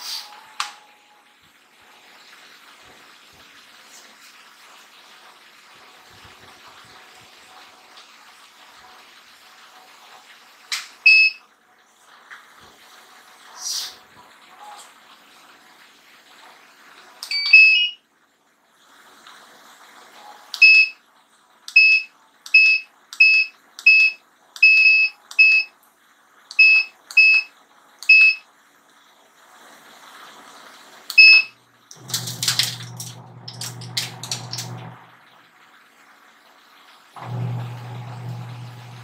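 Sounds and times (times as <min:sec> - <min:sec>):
short beeps: 0:17.2 - 0:18.0, 0:21.8 - 0:25.7, 0:26.6 - 0:27.5, 0:28.1 - 0:28.4, 0:31.2 - 0:31.5
washing machine low hum: 0:26.5 - 0:39.0.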